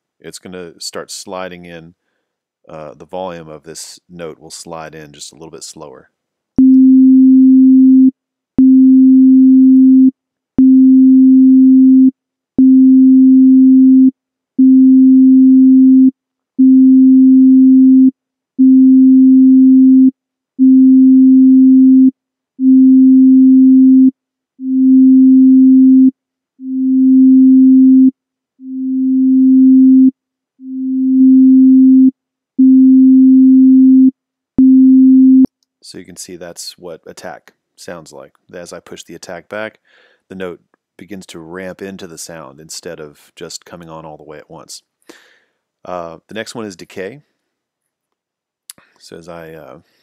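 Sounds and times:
synth sine tone notes: 0:06.6 - 0:35.5.

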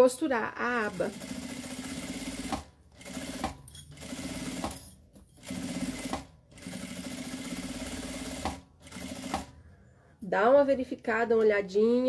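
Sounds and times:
sewing machine stitching: 0:00.8 - 0:09.5.

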